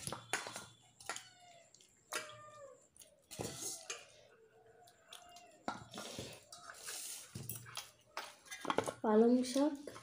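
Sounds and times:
cat meowing: 1.2s - 2.8s.

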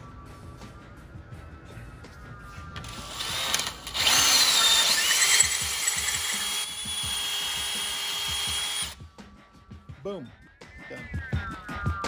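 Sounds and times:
power drill whining: 2.8s - 9.0s.

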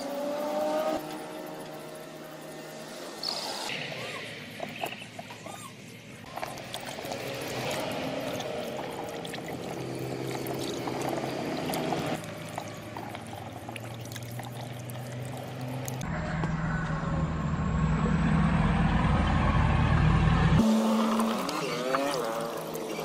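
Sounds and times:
water sloshing in plastic basin: 6.3s - 16.0s.

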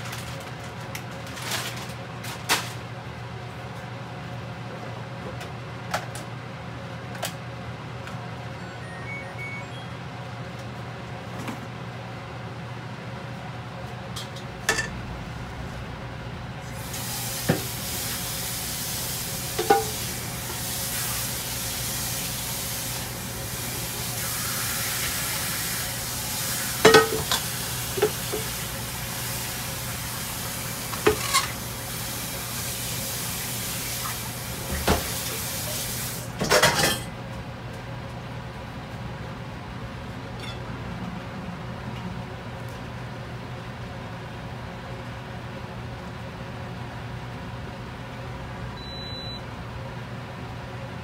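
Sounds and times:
rushing hiss: 16.6s - 26.8s
pots and pans clinking: 19.6s - 20.0s, 26.8s - 28.5s, 31.0s - 31.6s, 36.4s - 37.1s.

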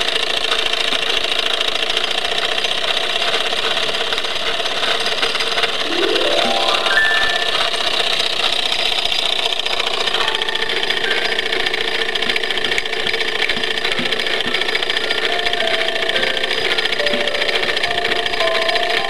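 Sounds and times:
model steam engine clattering: 0.0s - 5.8s, 8.0s - 19.0s
pipe organ held notes: 5.9s - 8.0s, 15.1s - 19.0s.

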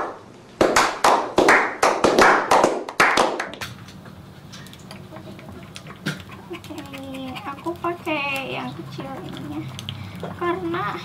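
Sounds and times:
small group clapping: 0.0s - 3.7s.

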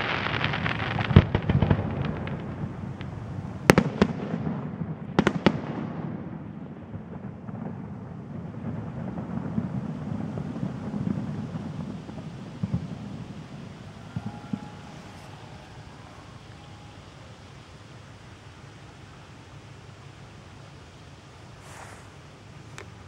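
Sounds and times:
firework shells bursting: 8.5s - 18.5s, 21.5s - 23.0s.

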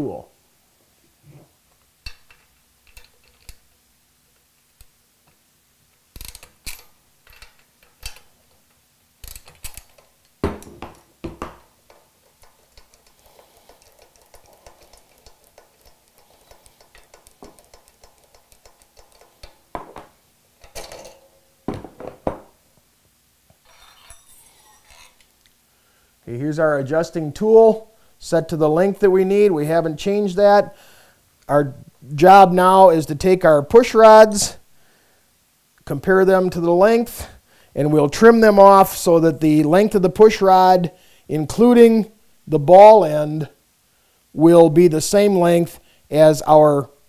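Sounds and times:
metal parts clanking: 6.2s - 8.6s, 11.6s - 22.4s
ratchet ticking: 11.8s - 19.6s.

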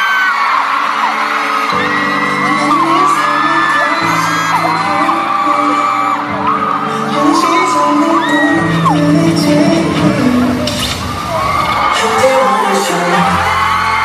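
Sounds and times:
crowd screaming: 0.0s - 14.0s
slow background music: 0.8s - 14.0s.

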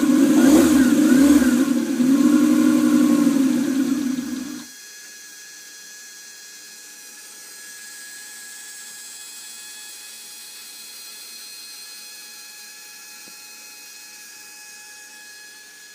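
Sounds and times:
electric fuel pump whine: 0.0s - 4.7s.

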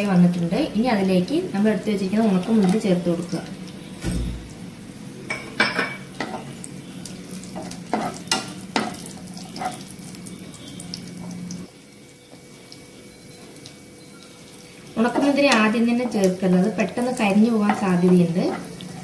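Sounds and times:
low background hum: 0.0s - 19.0s
nuts frying in hot ghee: 0.0s - 19.0s
spatula scraping and knocking pan: 17.5s - 19.0s.

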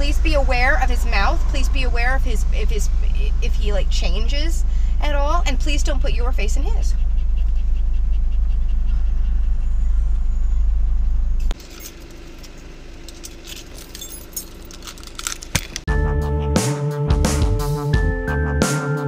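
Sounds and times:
car interior rumble: 0.0s - 15.9s
light clicks and rattles: 11.6s - 15.9s.

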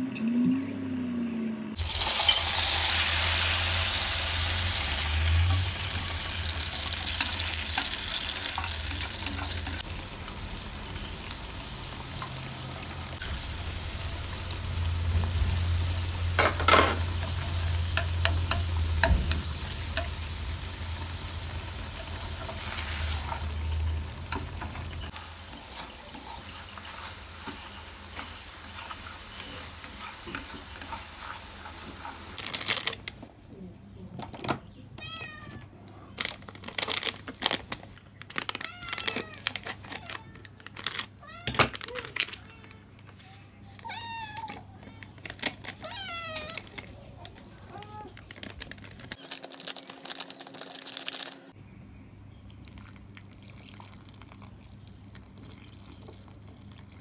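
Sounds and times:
soup sizzling in a pan: 1.8s - 32.6s.

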